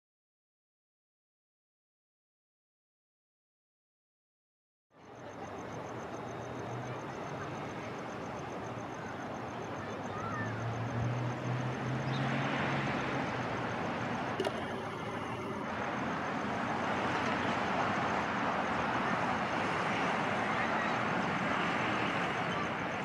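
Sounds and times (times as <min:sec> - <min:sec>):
road traffic hiss: 0:05.3 - 0:23.0
sharp click: 0:14.4 - 0:15.6.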